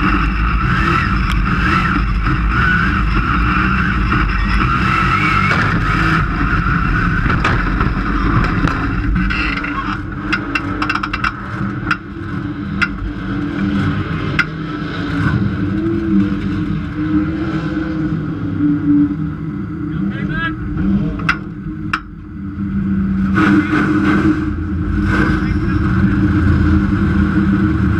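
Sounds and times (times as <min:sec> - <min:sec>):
race car engine idling: 0:00.0 - 0:14.8.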